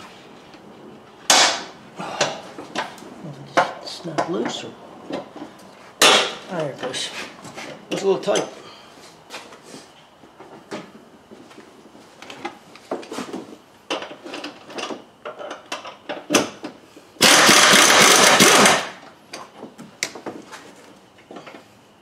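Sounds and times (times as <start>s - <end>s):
impact wrench hammering: 17.2s - 18.9s.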